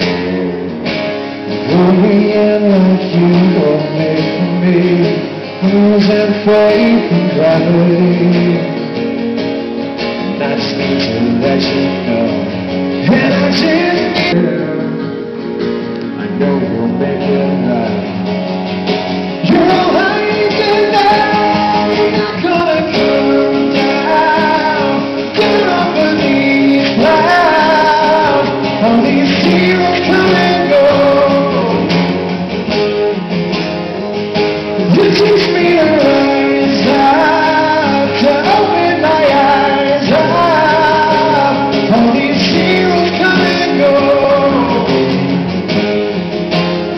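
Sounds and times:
man singing: 0.0 - 9.0, 10.2 - 18.4, 19.4 - 32.4, 34.6 - 45.5
acoustic guitars playing: 0.0 - 46.9.

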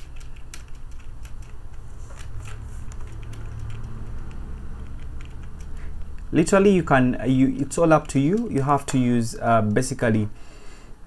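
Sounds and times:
keyboard typing clicks: 0.0 - 6.3, 7.9 - 9.0
low steady hum: 0.0 - 11.0.

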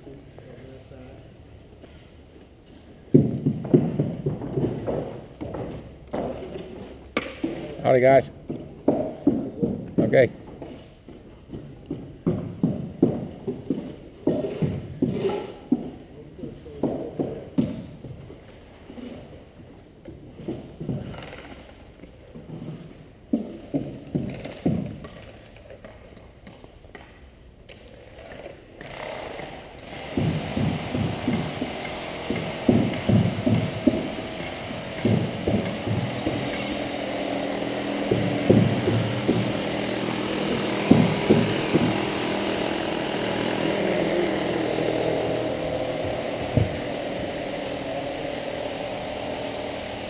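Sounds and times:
sharp knocks: 29.9 - 47.6
vehicle motor running: 29.9 - 50.0
dull thumps: 30.0 - 43.9.

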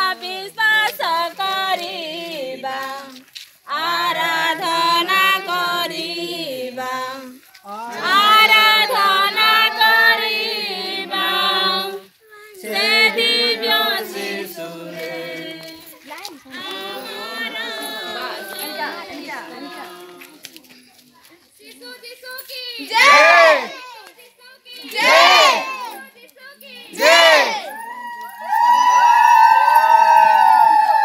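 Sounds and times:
group singing together: 0.0 - 20.5, 22.9 - 23.8, 24.8 - 25.8, 26.9 - 27.7.

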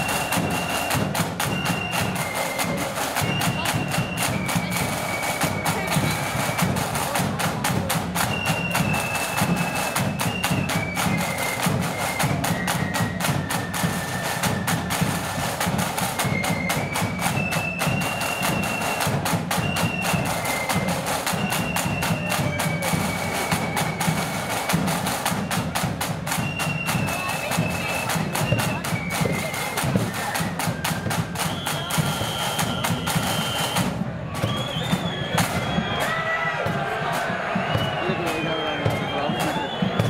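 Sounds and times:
flutes playing melody: 0.0 - 40.0
side drums playing fast rhythm: 0.0 - 40.0
deep drum beat: 35.3 - 40.0.

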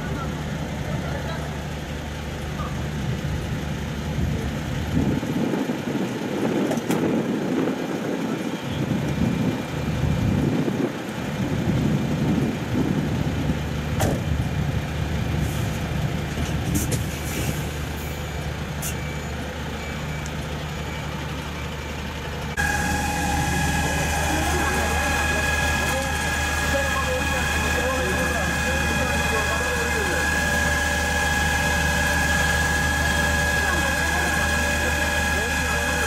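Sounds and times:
fire truck engine idling: 0.0 - 6.6, 7.2 - 36.0
rushing noise: 22.6 - 36.0.

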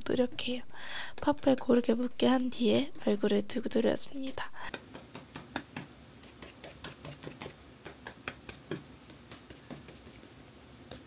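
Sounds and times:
makeup puff patting on skin: 4.7 - 11.0.

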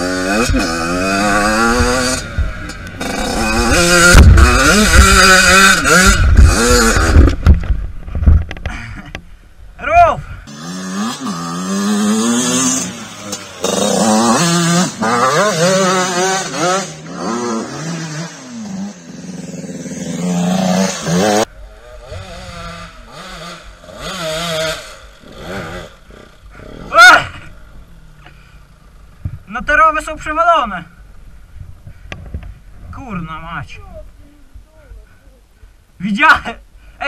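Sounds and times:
dirt bike engines revving: 0.0 - 7.8, 10.4 - 30.3.

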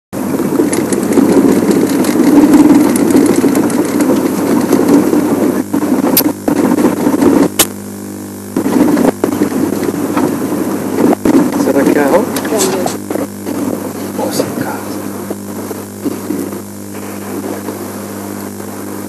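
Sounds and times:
vehicle engine running: 0.2 - 19.0
sharp clicks: 7.5 - 7.8.

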